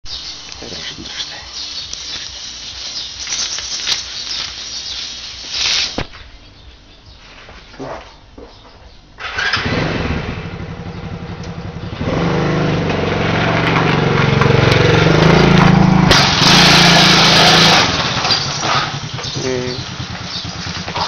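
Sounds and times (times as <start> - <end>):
small quad engine running: 9.2 - 21.0.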